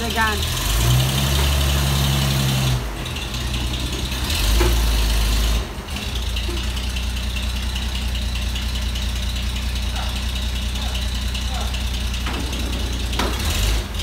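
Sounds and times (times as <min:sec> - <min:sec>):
truck engine idling: 0:00.0 - 0:14.0.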